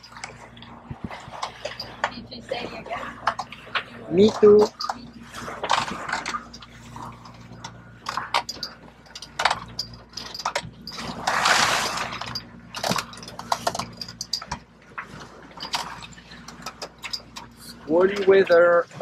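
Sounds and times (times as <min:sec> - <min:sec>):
steady low hum: 0:00.0 - 0:19.0
water splashing along hull: 0:00.0 - 0:19.0
wind on microphone: 0:00.7 - 0:01.6.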